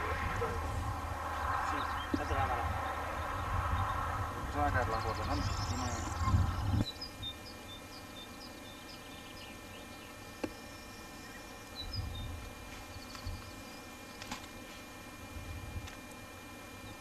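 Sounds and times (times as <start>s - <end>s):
small bird chirping: 5.2s - 13.9s.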